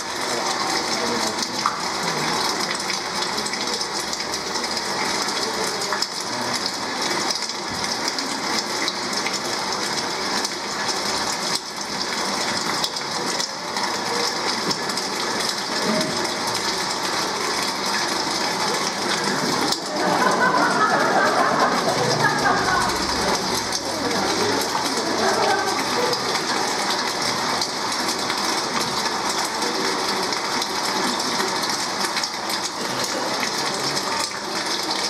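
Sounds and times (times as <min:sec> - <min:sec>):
audience murmur: 0:00.0 - 0:35.0.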